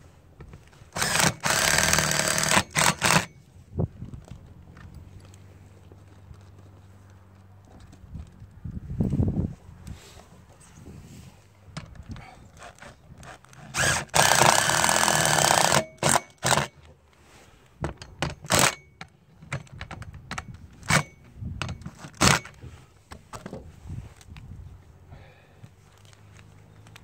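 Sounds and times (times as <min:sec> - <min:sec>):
cordless drill driving bolts: 0:00.9 - 0:03.3, 0:13.6 - 0:16.8, 0:18.1 - 0:20.1.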